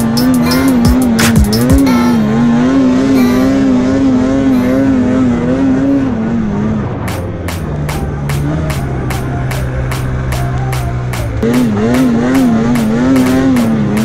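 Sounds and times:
music with a beat: 0.0 - 2.2, 7.1 - 14.0
snowmobile engine revving: 0.0 - 14.0.

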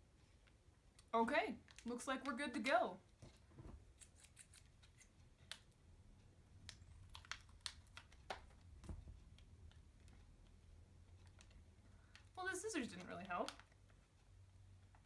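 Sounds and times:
scissors clicking on candy wrapper: 6.6 - 8.5.

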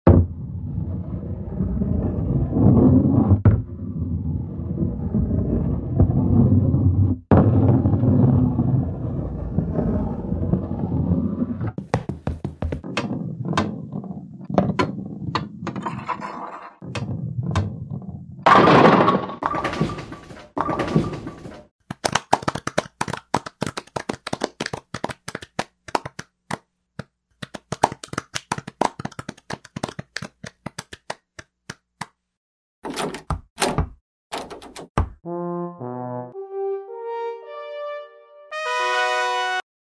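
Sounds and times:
bowling ball rolling: 0.1 - 21.6
bowling pins clattering: 18.5 - 21.7.

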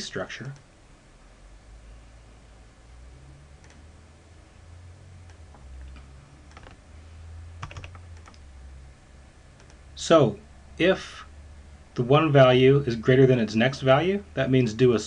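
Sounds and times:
low steady hum: 0.0 - 15.0
computer mouse clicks: 3.6 - 3.9, 5.2 - 6.8, 7.6 - 8.4, 9.6 - 9.8.

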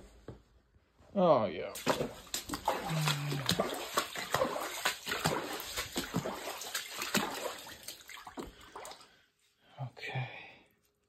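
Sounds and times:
footsteps splashing through water: 1.8 - 9.0.

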